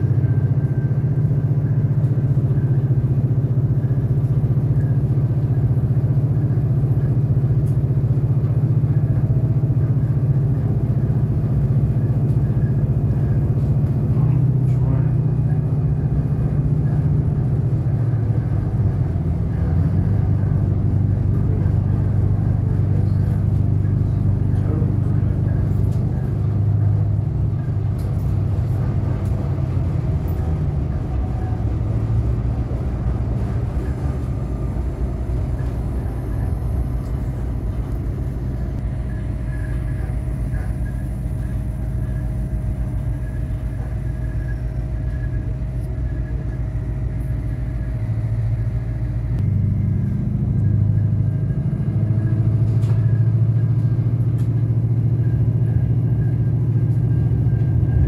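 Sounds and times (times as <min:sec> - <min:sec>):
railcar engine and wheels drone: 0:00.0 - 0:58.0
faint steady whine: 0:14.2 - 0:58.0.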